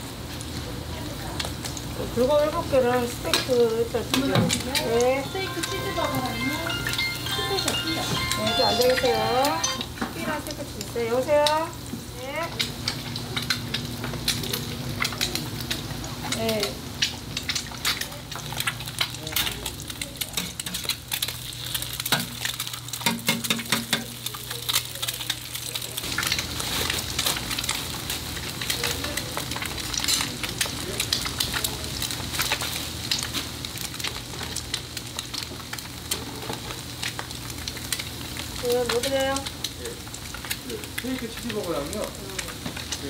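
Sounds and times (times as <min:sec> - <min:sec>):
food sizzling on a griddle: 0:00.0 - 0:43.0
metal utensils clicking and scraping: 0:17.5 - 0:25.4, 0:29.9 - 0:30.3.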